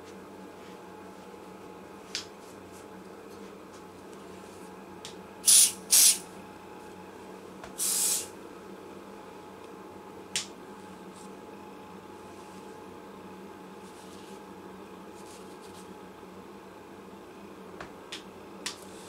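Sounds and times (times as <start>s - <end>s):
spray bottle spritzing: 5.5s - 6.2s.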